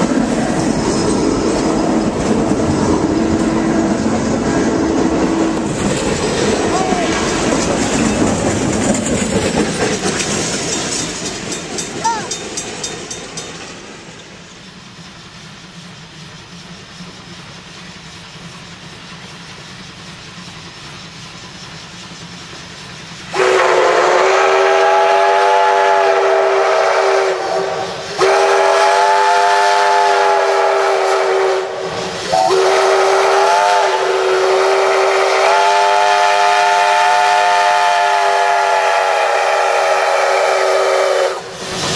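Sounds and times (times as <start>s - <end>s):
train wheels clattering: 0.0s - 41.9s
steam locomotive chime whistle: 23.3s - 41.6s.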